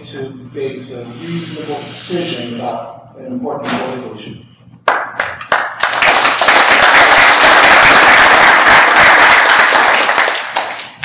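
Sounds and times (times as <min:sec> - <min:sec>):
audience applause: 0:04.9 - 0:11.0.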